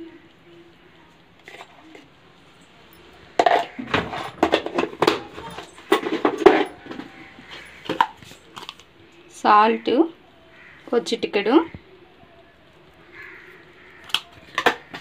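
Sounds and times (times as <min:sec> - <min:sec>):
metal utensils clinking: 0:01.4 - 0:09.3, 0:13.1 - 0:15.0.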